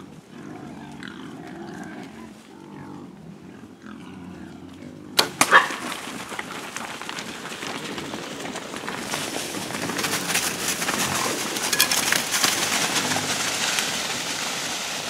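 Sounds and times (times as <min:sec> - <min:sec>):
hogs grunting: 0:00.0 - 0:06.0, 0:09.6 - 0:13.8
animals crashing through dry leaves: 0:05.2 - 0:15.0.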